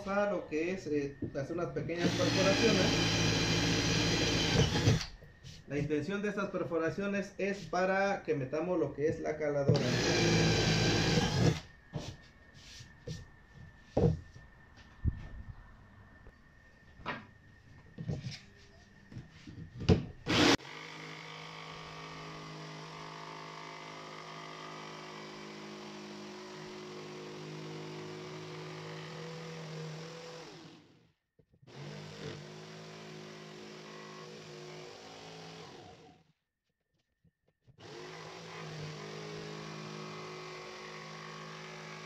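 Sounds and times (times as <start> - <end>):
jigsaw cutting board: 2.0 - 5.1, 9.8 - 11.6, 19.9 - 22.8, 31.7 - 36.2, 37.8 - 42.0.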